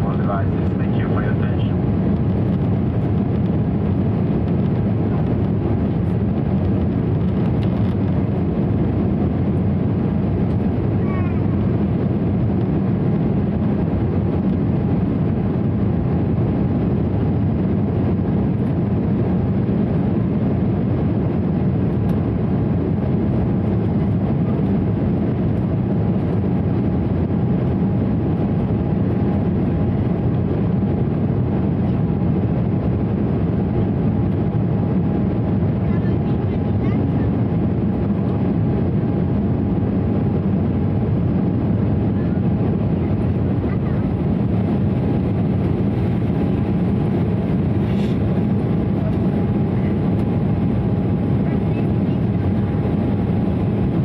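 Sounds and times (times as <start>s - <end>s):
jet engine rumble in cabin: 0.0s - 54.0s
airflow: 21.7s - 54.0s.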